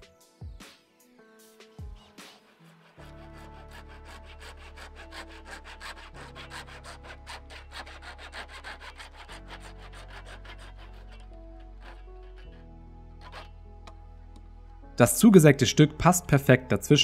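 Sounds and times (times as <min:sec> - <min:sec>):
handsaw cutting plastic pipe: 0:01.6 - 0:14.0.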